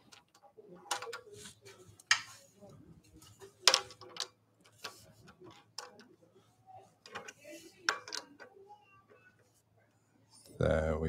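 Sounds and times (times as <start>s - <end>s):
wood and metal clicks and knocks: 0.0s - 1.3s, 3.6s - 6.1s, 7.0s - 8.6s.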